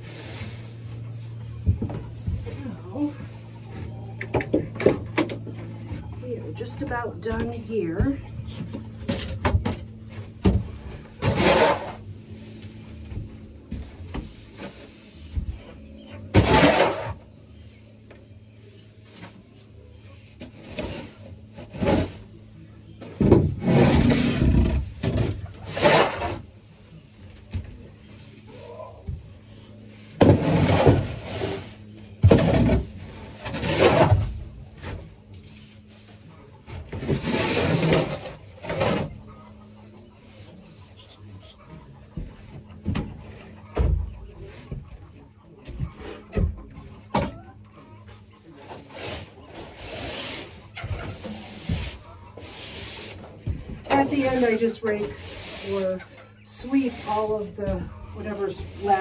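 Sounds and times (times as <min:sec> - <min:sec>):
rake scraping wooden floor: 0:00.0 - 0:39.5, 0:48.2 - 0:59.0
low steady hum: 0:00.0 - 0:59.0
shovel scraping: 0:11.1 - 0:12.1, 0:16.2 - 0:17.2, 0:23.6 - 0:26.5, 0:30.2 - 0:34.3, 0:37.0 - 0:39.1, 0:48.7 - 0:53.2, 0:53.9 - 0:59.0.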